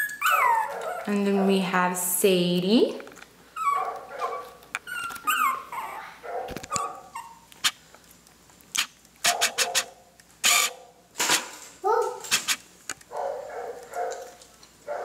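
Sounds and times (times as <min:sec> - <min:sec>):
puppies whining: 0:00.0 - 0:01.4, 0:03.5 - 0:07.6
puppies yipping: 0:00.0 - 0:01.4, 0:03.6 - 0:07.6.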